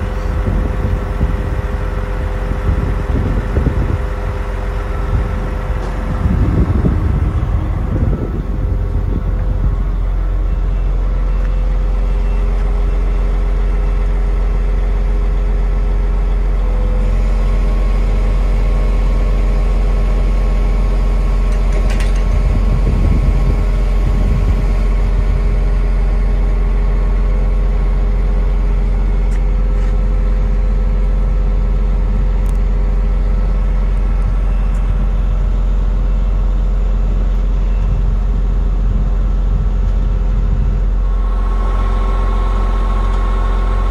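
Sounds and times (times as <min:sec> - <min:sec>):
crane clunk: 0:00.0 - 0:13.4, 0:21.4 - 0:24.8
truck engine and hydraulic pump: 0:00.0 - 0:43.9.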